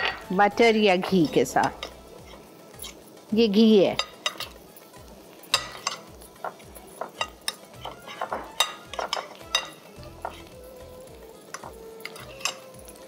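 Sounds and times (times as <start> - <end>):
metal spoon clinking on glass dish: 1.2 - 2.0, 4.0 - 4.6, 5.5 - 6.1, 7.0 - 10.5, 11.5 - 13.0.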